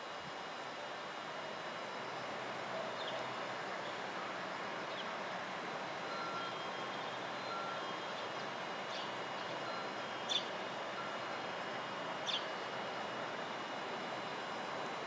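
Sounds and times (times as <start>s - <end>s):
electric train humming: 0.0s - 15.0s
faint short beeps: 6.1s - 8.2s.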